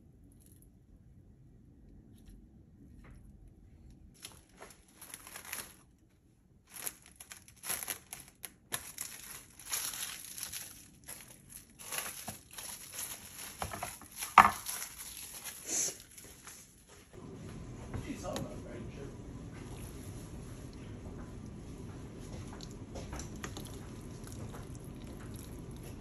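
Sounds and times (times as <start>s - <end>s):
plastic cling wrap crinkling: 4.1s - 16.9s.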